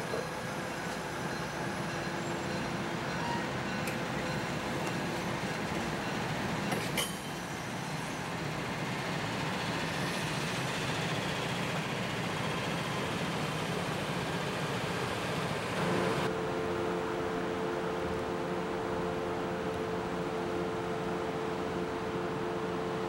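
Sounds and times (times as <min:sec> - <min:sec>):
train wheels rolling on rails: 0:00.0 - 0:16.3
diesel railcar engines running: 0:00.0 - 0:23.0.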